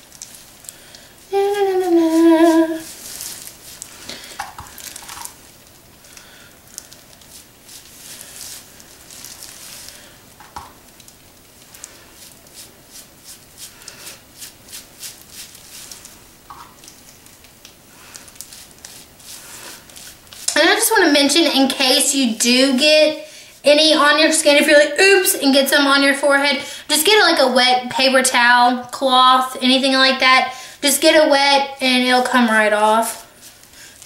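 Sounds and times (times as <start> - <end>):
wet hair squishing and rustling: 0.0 - 22.9.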